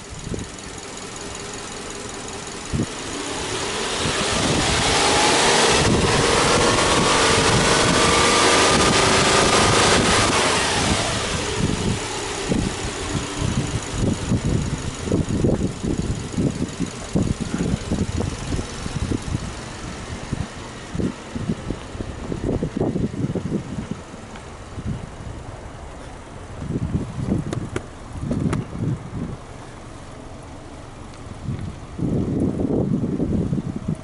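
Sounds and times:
car engine revving: 0.0 - 26.4
uneven low thumps in idle: 26.5 - 34.0.

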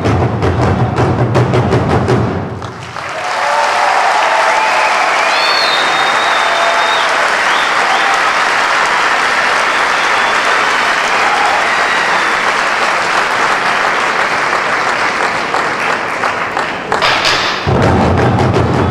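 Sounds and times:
large audience applauding: 2.5 - 17.7.

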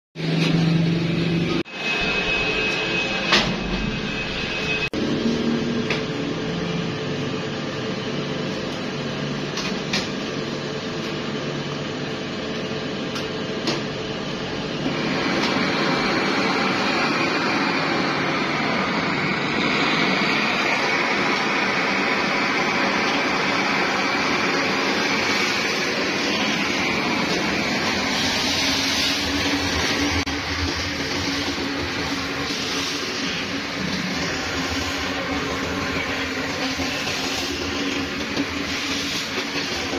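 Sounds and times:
workshop machinery hum: 0.2 - 39.9
gas torch hissing: 14.8 - 39.9.

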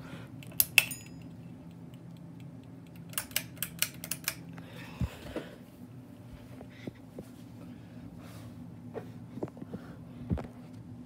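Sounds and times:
low steady hum: 0.0 - 11.0
fan pull chain clicking: 0.4 - 4.6.

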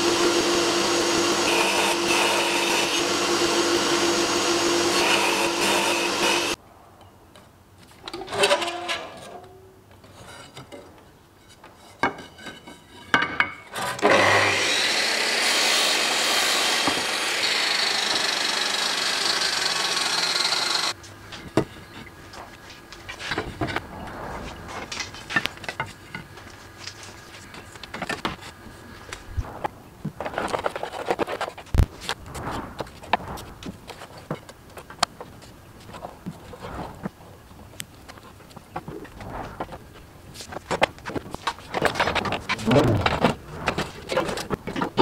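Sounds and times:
miter saw cutting wood: 0.0 - 6.6, 14.0 - 21.0.

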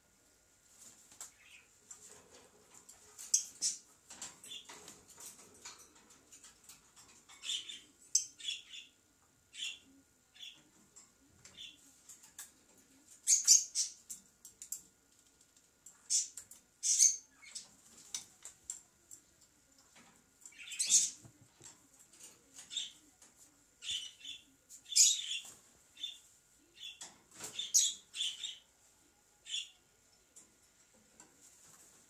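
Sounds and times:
parrots chirping: 16.1 - 17.6.

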